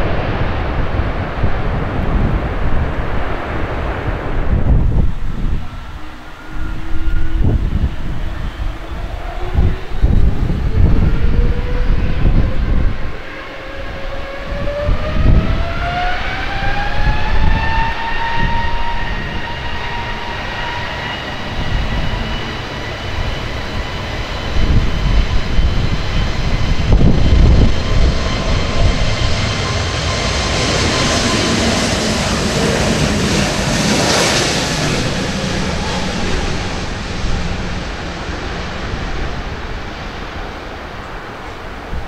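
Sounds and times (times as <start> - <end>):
jet engines spooling up: 0.0 - 42.0
wind buffeting microphone: 0.0 - 42.0.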